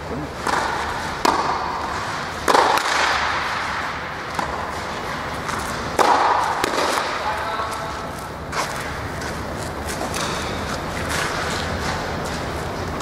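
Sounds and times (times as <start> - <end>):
tennis ball hits echoing: 0.4 - 4.8, 6.0 - 7.2.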